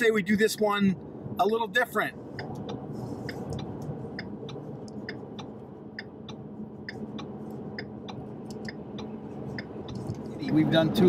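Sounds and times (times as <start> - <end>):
engine and road hum: 0.0 - 11.0
turn signal ticking: 2.2 - 11.0.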